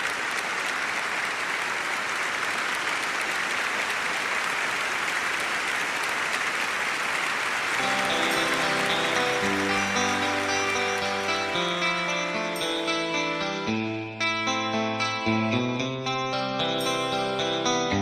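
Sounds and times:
audience applauding: 0.0 - 13.7
music with held chords: 7.8 - 18.0.

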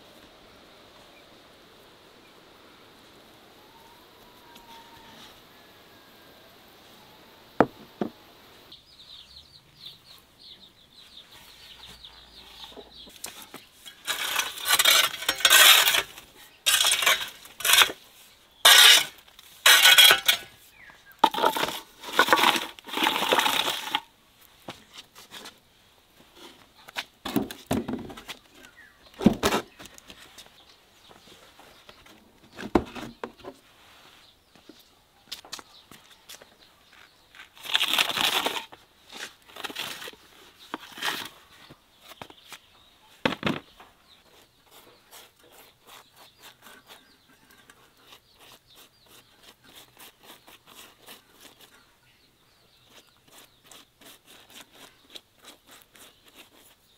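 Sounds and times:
rake scraping embers on brick: 12.6 - 24.1, 37.6 - 41.4, 44.3 - 51.8, 52.8 - 56.9
rake knocks: 18.7 - 20.5.

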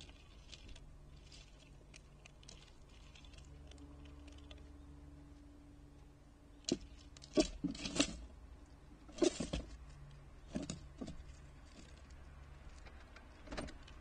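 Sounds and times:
steady low hum: 0.0 - 14.0
squirrel scrabbling on wooden feeder: 6.6 - 8.3, 9.1 - 14.0.

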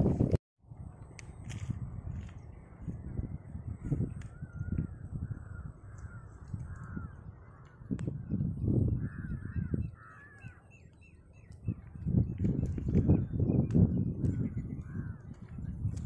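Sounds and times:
wind rumbling on microphone: 0.0 - 16.0
crows cawing: 4.4 - 8.2, 9.0 - 10.8, 14.7 - 15.5.

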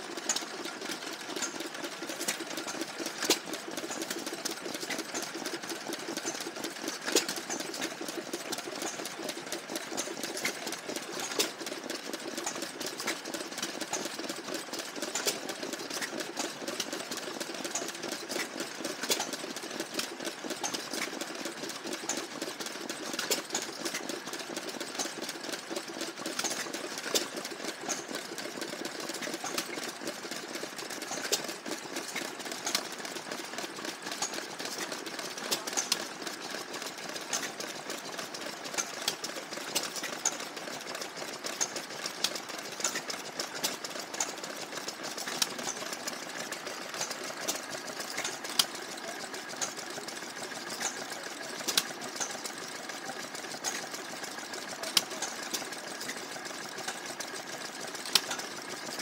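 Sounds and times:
stationary engines clattering: 0.0 - 59.0.

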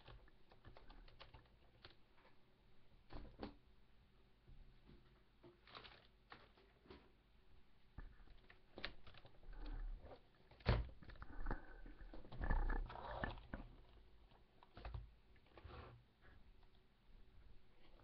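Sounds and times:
rustling and scraping: 4.8 - 7.4, 8.0 - 16.8.

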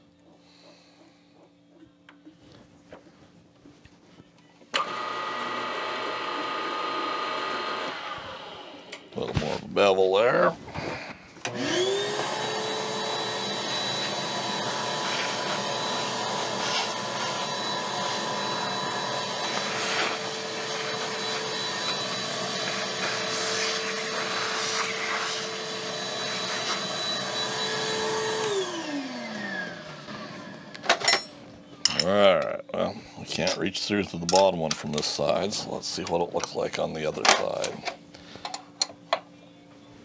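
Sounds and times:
shop vacuum motor whining: 4.7 - 31.1.

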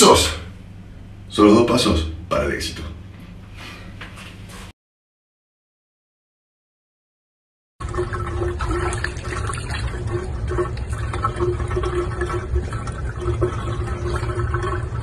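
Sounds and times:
water running in bathtub: 7.8 - 15.0.

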